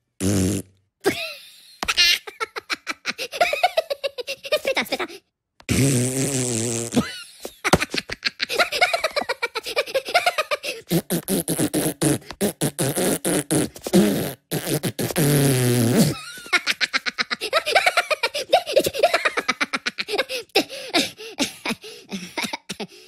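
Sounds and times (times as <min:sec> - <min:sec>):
buzzing raspberry: 0:00.2 - 0:00.8, 0:05.7 - 0:07.1, 0:10.9 - 0:16.2
cartoon voices beatboxing: 0:10.8 - 0:16.2.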